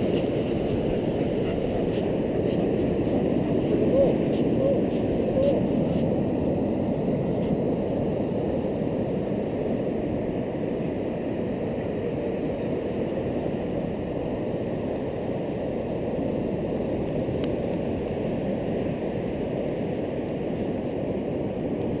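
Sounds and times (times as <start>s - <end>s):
wind buffeting microphone: 0.0s - 10.6s.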